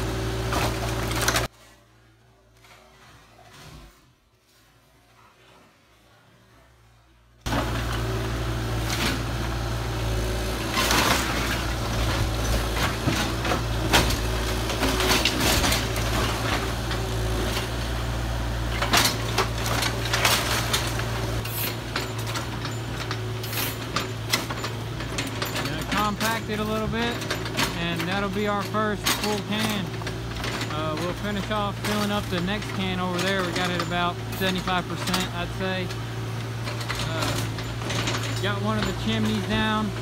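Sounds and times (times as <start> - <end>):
diesel engine running: 0.0 - 1.5, 7.5 - 40.0
debris crashing and clattering: 10.8 - 17.0, 18.7 - 21.2.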